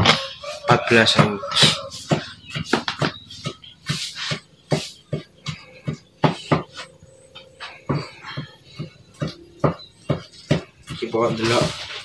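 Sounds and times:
cleaver chopping on wooden board: 1.1 - 6.8, 7.9 - 11.1.

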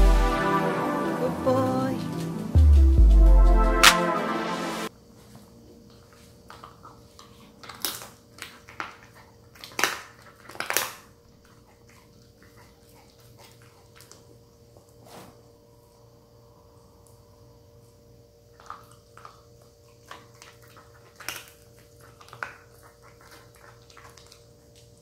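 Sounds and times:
dog crunching a treat: 5.9 - 14.4, 18.5 - 25.0
faint chewing ticks: 11.4 - 14.3, 18.5 - 25.0.

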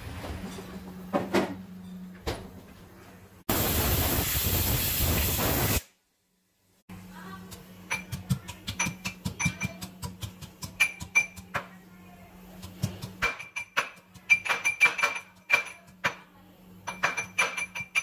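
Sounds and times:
pressure cooker hissing steam: 3.5 - 5.9
pestle pounding in metal mortar: 7.9 - 11.7, 12.6 - 16.2.

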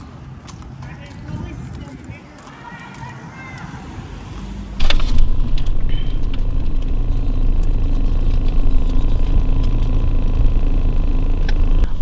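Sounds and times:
car cabin rumble: 4.8 - 12.0.

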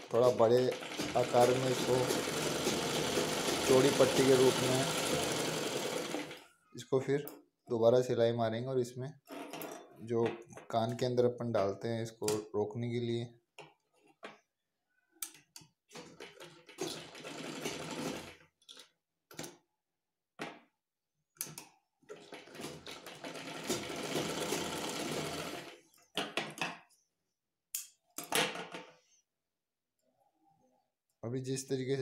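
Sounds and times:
sewing machine running: 0.0 - 6.4, 16.2 - 18.4, 22.1 - 25.8.

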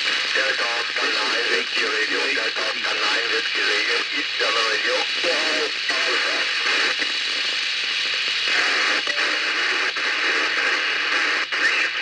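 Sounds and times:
radio receiver hiss: 0.0 - 12.0
faint radio voice: 0.3 - 6.9.

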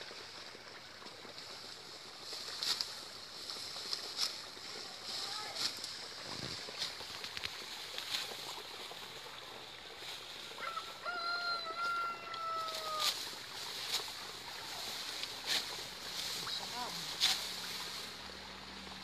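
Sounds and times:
sickle cutting stalks: 2.2 - 8.5, 11.8 - 18.2
rice stalks rustling and snapping: 2.2 - 8.6, 12.7 - 18.2
rooster crowing: 10.6 - 13.2.

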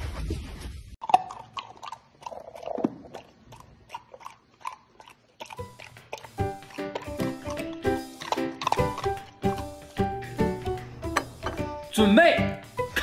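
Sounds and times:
puppy chewing: 1.0 - 11.4
music: 5.6 - 13.0.

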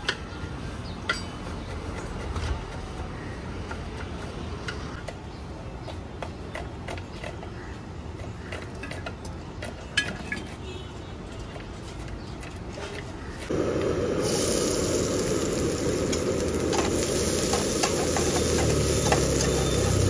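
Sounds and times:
steady low rumble: 13.5 - 19.6.

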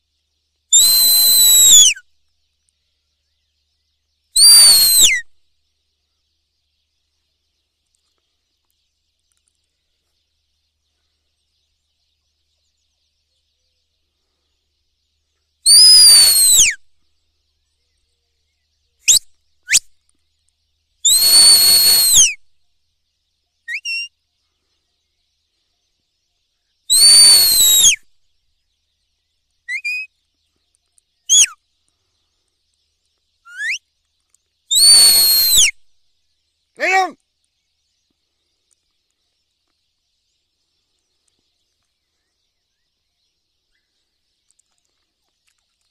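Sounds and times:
shrill whistle blasts: 0.8 - 2.0, 4.4 - 5.2, 15.7 - 16.8, 21.1 - 22.4, 26.9 - 28.0, 34.7 - 35.8
upward-sweeping whistle chirps: 0.8 - 2.0, 4.4 - 5.3, 15.7 - 16.8, 21.1 - 22.4, 26.9 - 28.0, 34.7 - 35.8.

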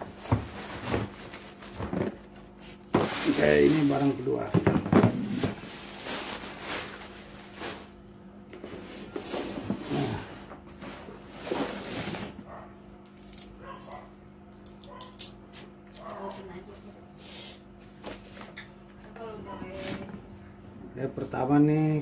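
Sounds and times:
plastic wrapping crinkling: 0.0 - 4.2, 5.0 - 8.0.

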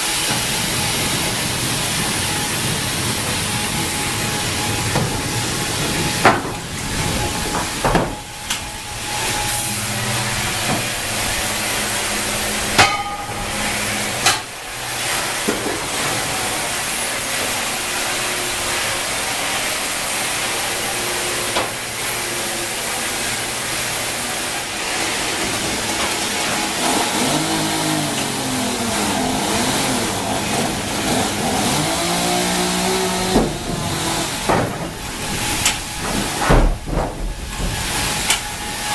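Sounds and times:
sawmill machinery running: 0.0 - 38.9
wavering tone: 0.5 - 14.2
sharp knocks: 12.8 - 14.4, 33.2 - 38.5.

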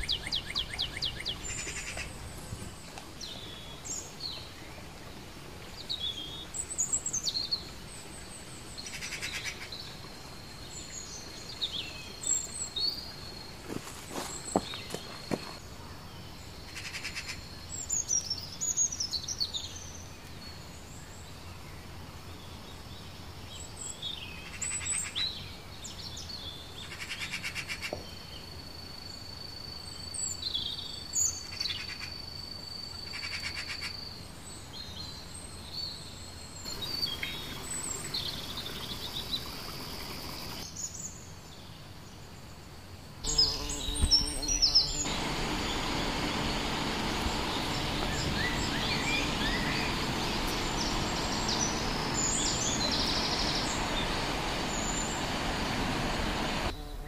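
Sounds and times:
birds chirping: 10.7 - 15.6, 36.6 - 40.7, 43.3 - 57.0
bird trills: 43.3 - 56.7.

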